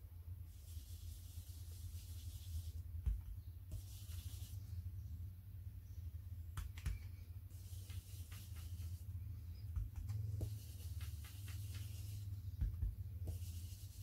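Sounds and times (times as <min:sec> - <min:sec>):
steady low hum: 0:00.0 - 0:14.0
brush rubbing over stencil: 0:00.5 - 0:02.9, 0:03.7 - 0:04.8, 0:07.5 - 0:14.0.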